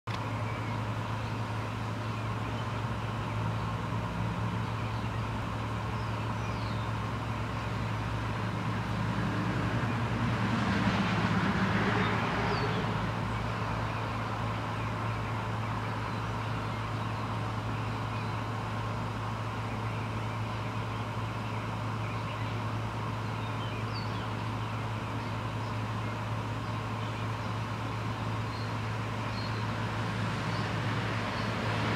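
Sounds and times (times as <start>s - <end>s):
distant traffic hum: 0.1s - 31.9s
vehicle passing: 7.2s - 16.7s, 29.4s - 31.9s
faint bird chirps: 19.5s - 29.7s.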